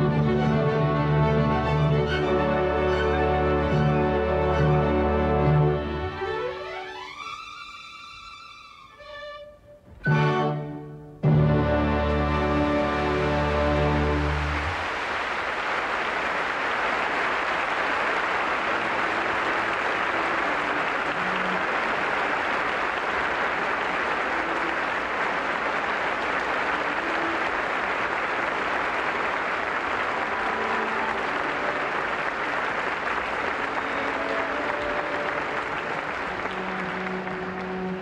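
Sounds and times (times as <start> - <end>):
audience applauding: 11.8 - 38.0.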